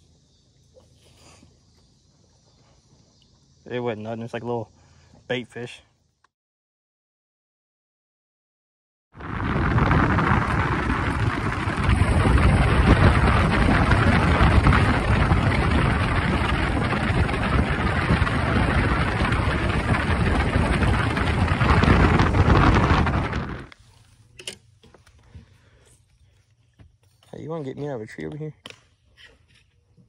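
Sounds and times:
motorboat engine and water rushing: 9.2 - 23.7.

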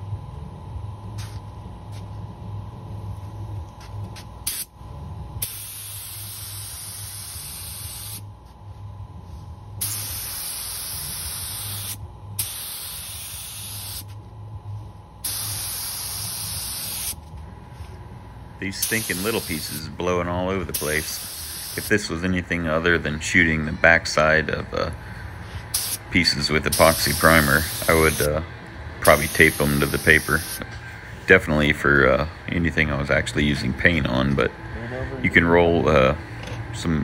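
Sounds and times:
low steady hum: 0.0 - 37.0
spray gun hissing: 5.4 - 8.2, 9.8 - 14.1, 15.2 - 17.2, 18.8 - 19.9, 20.7 - 22.1, 25.7 - 26.0, 26.6 - 28.4, 29.0 - 30.6.

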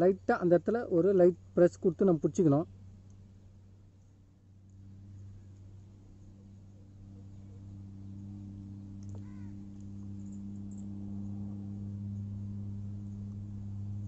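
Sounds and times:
low electrical hum: 0.0 - 14.0
crow cawing: 9.1 - 9.6.

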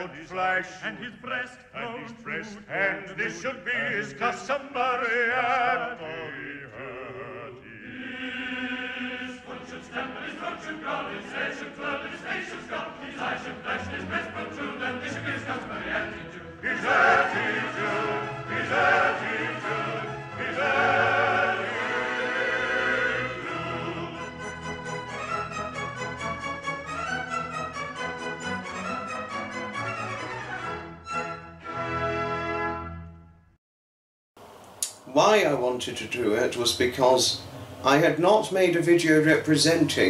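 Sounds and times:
operatic choral singing: 0.0 - 30.6.

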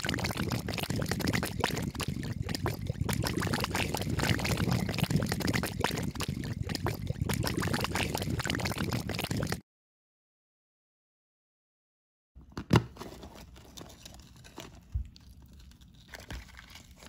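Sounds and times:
effervescent tablet fizzing in water: 0.0 - 9.6.

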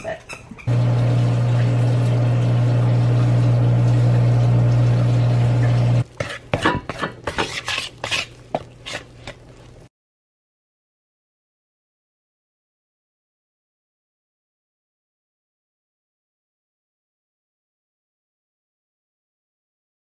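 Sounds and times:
kitchen appliance humming: 0.7 - 6.2.

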